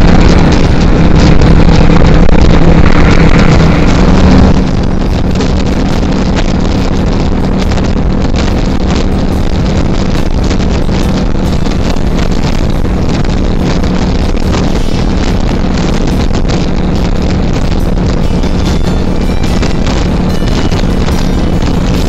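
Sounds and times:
motorcycle engine running: 0.0 - 22.0
wind buffeting microphone: 0.0 - 22.0.

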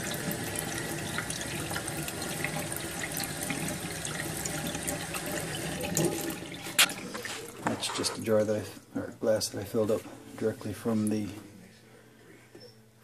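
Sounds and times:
glass being filled with water: 0.0 - 8.2
faucet running into a sink: 0.0 - 8.3.

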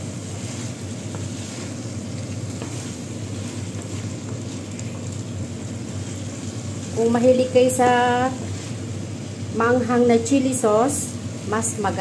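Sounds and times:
food sizzling in a frying pan: 0.0 - 12.0
spatula scrapes and taps: 2.5 - 3.0.

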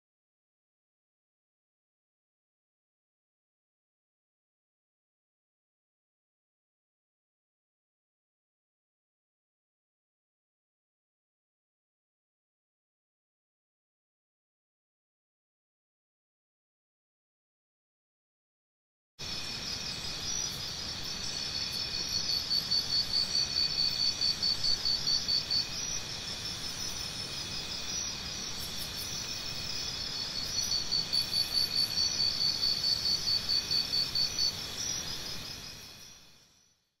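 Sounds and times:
crickets chirping: 19.2 - 36.9.

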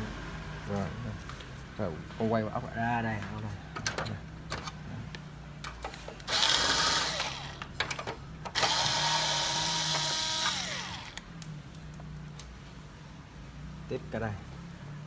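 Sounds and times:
electric screwdriver whirring: 6.3 - 7.6, 8.5 - 11.2.

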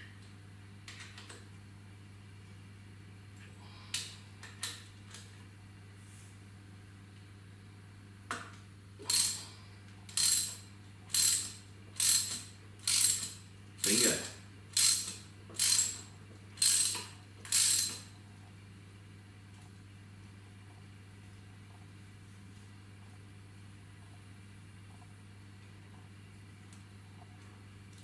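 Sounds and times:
socket ratchet clicking: 9.1 - 9.4, 10.1 - 18.1.

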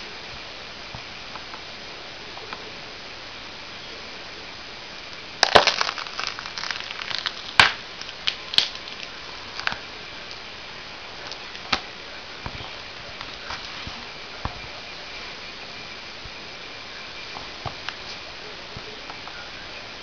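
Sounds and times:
boot crushing fruit: 5.4 - 9.8
sharp cracks of fruit pulp: 5.4 - 9.8.

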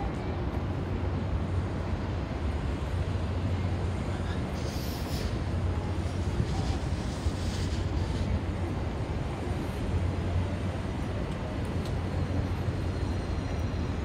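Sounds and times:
low rumble of street traffic: 0.0 - 14.0.

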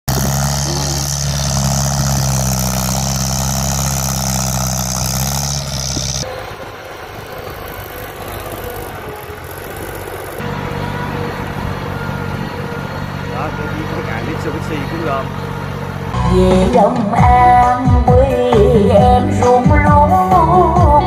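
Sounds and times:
tractor engine under load: 0.0 - 20.1
rough quieter tractor engine: 0.0 - 21.0.

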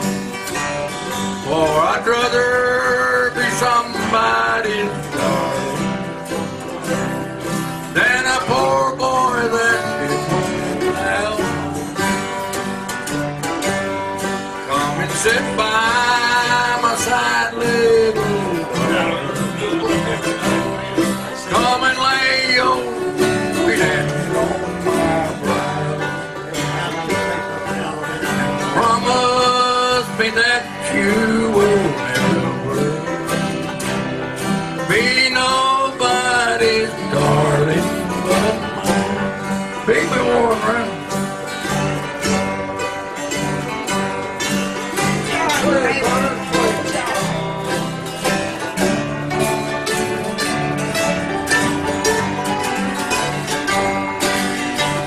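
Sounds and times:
banjo: 0.0 - 55.0
bluegrass band playing: 0.0 - 55.0
man singing: 1.4 - 12.4, 14.4 - 41.8, 45.0 - 49.0.

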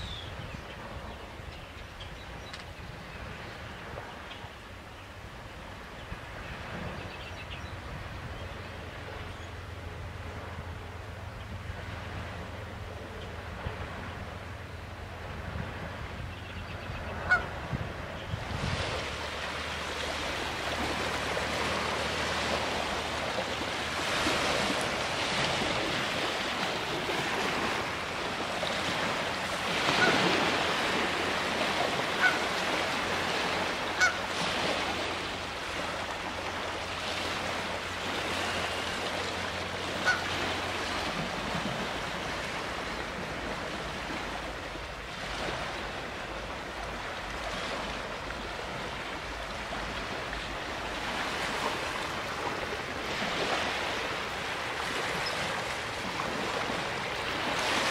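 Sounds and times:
goose honking: 17.2 - 17.6, 29.8 - 30.3, 32.1 - 32.6, 33.9 - 34.3, 39.9 - 40.4
waves lapping on pebble beach: 18.4 - 57.9.

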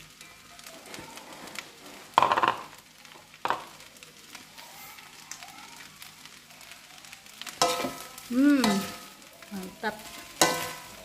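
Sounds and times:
frying sizzle: 0.0 - 11.0
metal spatula striking wok: 7.6 - 9.1, 10.0 - 11.0.

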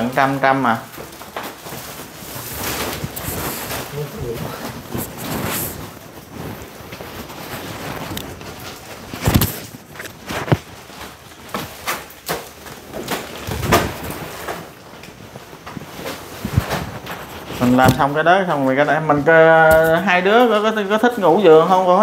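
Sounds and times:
plastic wrapping rustling: 0.0 - 22.0
mattress thumps and knocks: 9.1 - 11.8.

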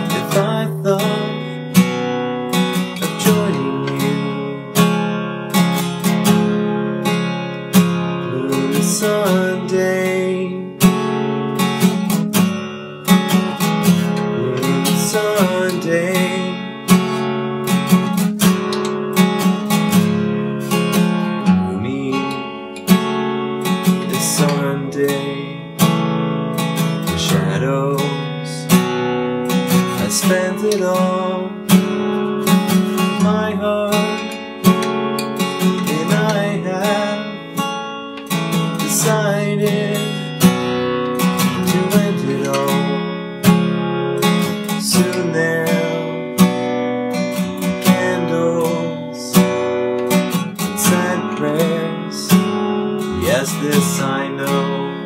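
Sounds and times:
acoustic guitar strummed chords: 0.0 - 55.0.

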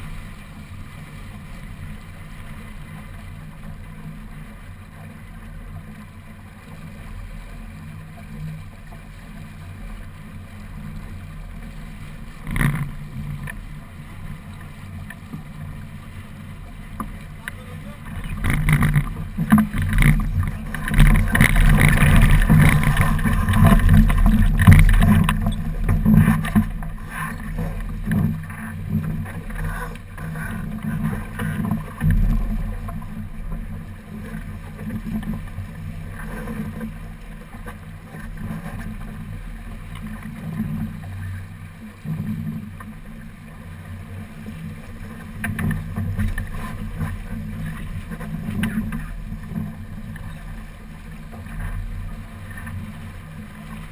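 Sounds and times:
water rushing along boat hull: 0.0 - 53.9
wind buffeting microphone: 18.1 - 26.8.

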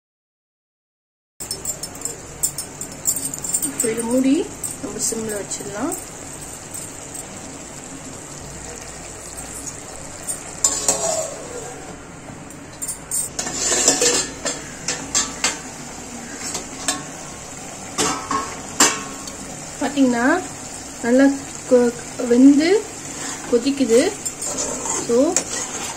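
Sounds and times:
curry sizzling and simmering: 1.5 - 25.9
metal pan and lid clanks: 9.4 - 11.4, 12.5 - 15.6, 16.5 - 17.2, 18.0 - 19.3.

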